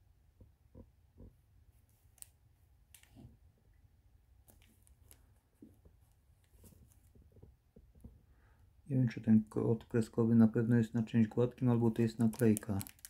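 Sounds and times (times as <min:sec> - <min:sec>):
cellophane wrap crinkling: 0:11.8 - 0:13.0.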